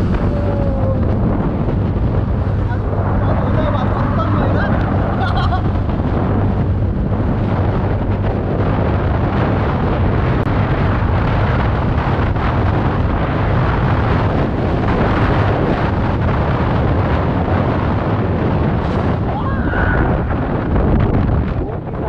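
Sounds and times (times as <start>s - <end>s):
scooter engine running: 0.0s - 7.2s
wind rush on microphone: 0.0s - 22.0s.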